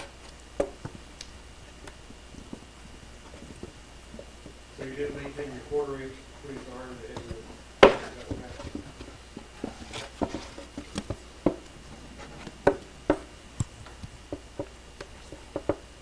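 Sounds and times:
wooden picture frame knocks: 7.8 - 8.9.

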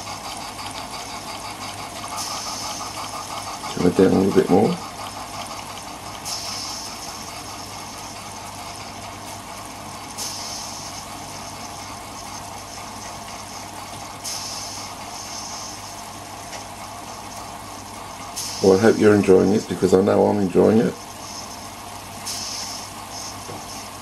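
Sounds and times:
model steam engine exhaust beat: 0.0 - 24.0
loud steam hiss: 2.2 - 3.0, 6.2 - 7.6, 10.2 - 11.5, 14.2 - 16.2, 18.3 - 19.8, 21.0 - 24.0.

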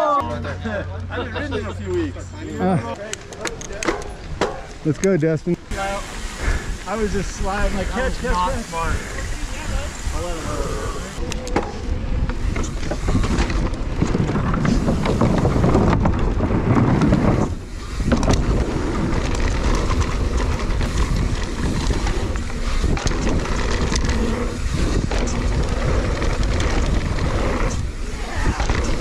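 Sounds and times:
bike rattling: 1.6 - 29.0
tyres rolling on dirt: 2.8 - 29.0
wind rushing over microphone: 5.7 - 29.0.

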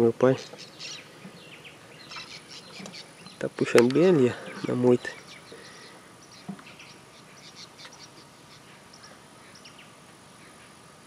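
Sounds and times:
birds and insects chirping: 0.0 - 11.0
high-pitched insect whine: 4.0 - 9.9.

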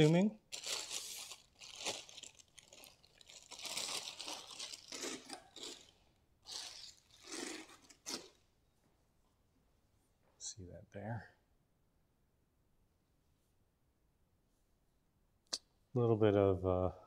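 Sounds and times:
packaging wrap tearing and crumpling: 0.0 - 8.4.

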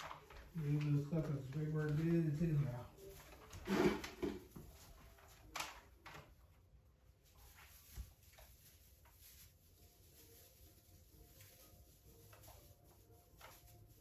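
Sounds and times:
plastic branches rustling: 0.0 - 14.0.

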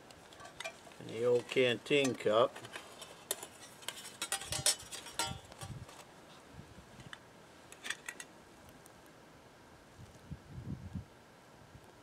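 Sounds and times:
metal cup clinking: 4.2 - 5.4.

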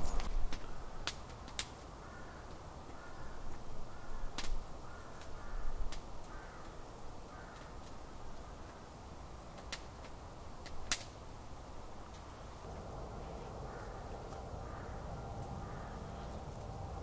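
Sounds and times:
crow harsh calls: 2.0 - 7.8, 12.7 - 17.0.

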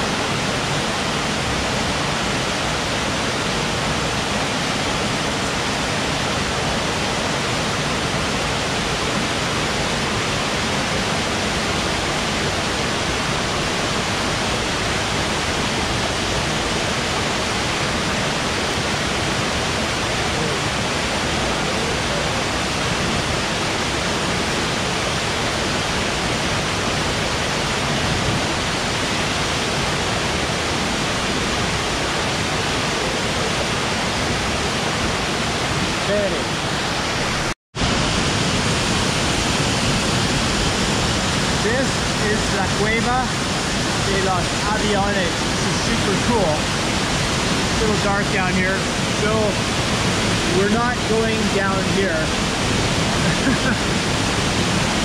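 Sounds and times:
waterfall rushing: 0.0 - 55.0.

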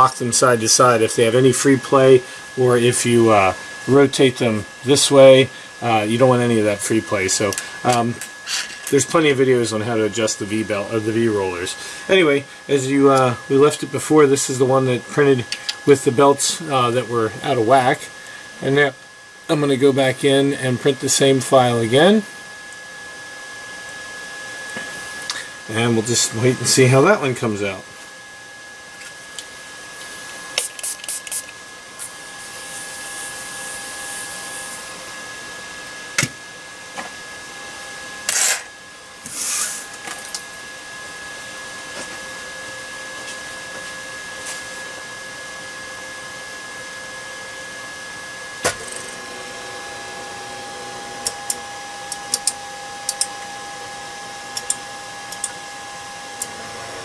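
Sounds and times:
printer motor whine: 31.3 - 57.0
three d printer humming: 48.6 - 57.0.

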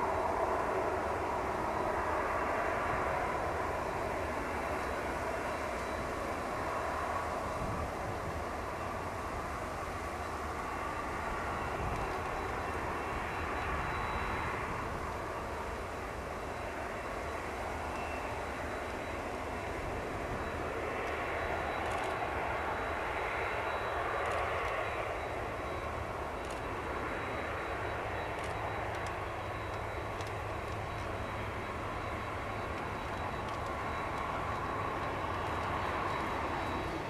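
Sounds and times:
jet engines running: 0.0 - 37.0.

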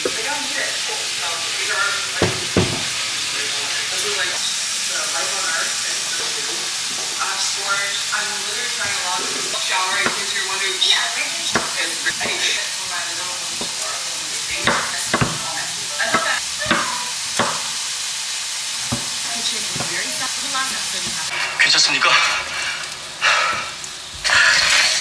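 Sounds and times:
food sizzling in a frying pan: 0.0 - 25.0
utensil knocking and scraping pan: 8.8 - 10.5, 18.8 - 20.2.

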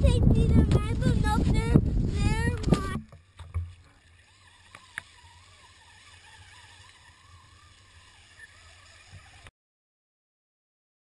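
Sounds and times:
electric motor whine: 1.8 - 9.5.

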